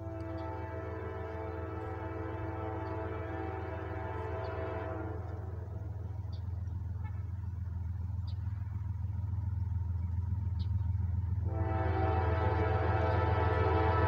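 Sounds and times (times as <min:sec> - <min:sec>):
locomotive horn chord: 0:00.0 - 0:07.4, 0:11.4 - 0:14.0
freight train rumble: 0:00.0 - 0:14.0.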